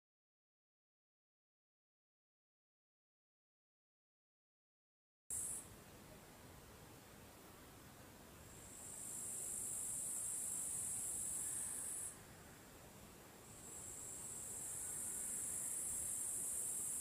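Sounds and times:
insect hissing buzz: 5.3 - 5.6, 8.6 - 12.2, 13.5 - 17.0.

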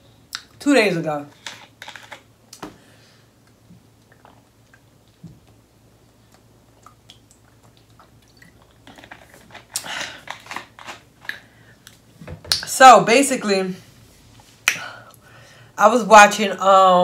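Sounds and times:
chewing and swallowing: 3.4 - 10.0.

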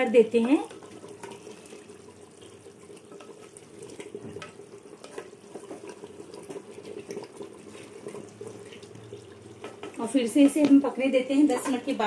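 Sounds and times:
curry bubbling and popping: 0.0 - 12.0
spatula scraping a pot: 3.1 - 8.2.

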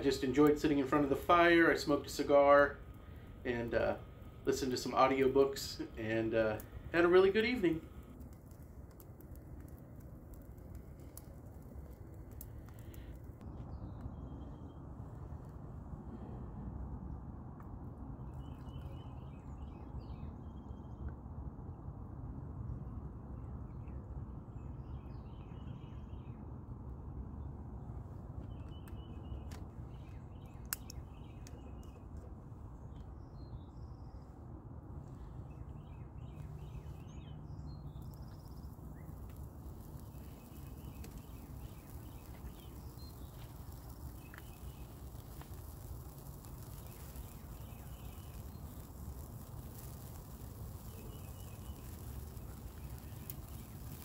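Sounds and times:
birds chirping: 0.0 - 14.9, 18.3 - 21.1, 28.4 - 54.0
steady low rumble: 0.0 - 54.0
faint clicks: 30.4 - 32.3, 37.9 - 54.0.

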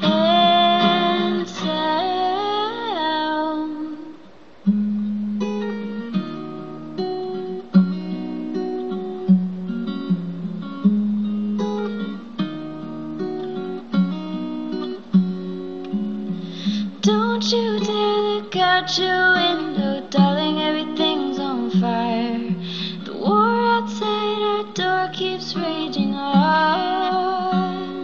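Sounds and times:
woman singing: 0.0 - 4.2, 16.8 - 28.0
acoustic guitar picking: 0.0 - 28.0.

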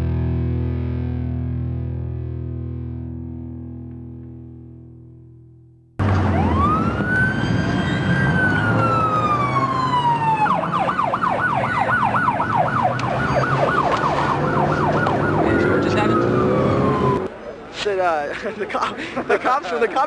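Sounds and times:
low rumble of traffic: 6.0 - 20.0
police siren wailing and yelping: 6.1 - 17.3.

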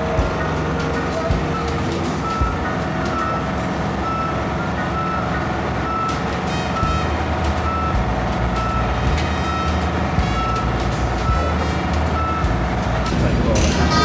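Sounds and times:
machinery warning beeps: 0.0 - 6.2, 8.6 - 12.5
engine running steadily: 0.0 - 14.0.

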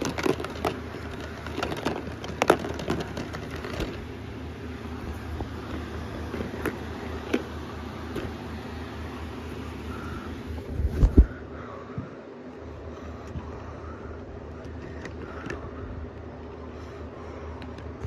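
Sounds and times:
paper and cardboard rustling: 0.0 - 4.1
steady low hum: 0.0 - 18.0.

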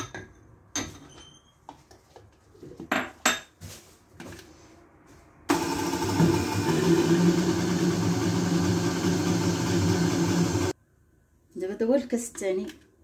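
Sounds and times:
blender humming: 5.5 - 10.7.

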